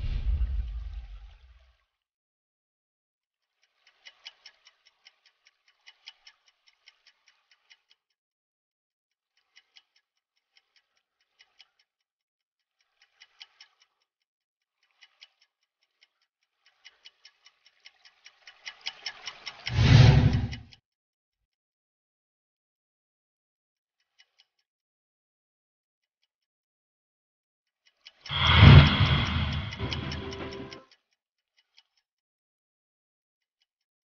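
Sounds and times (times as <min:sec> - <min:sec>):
loud deep whoosh: 0:00.0 - 0:01.2, 0:28.3 - 0:30.7
clock ticking: 0:03.6 - 0:08.2, 0:09.2 - 0:12.0, 0:12.7 - 0:20.8, 0:24.0 - 0:24.7, 0:28.0 - 0:30.8.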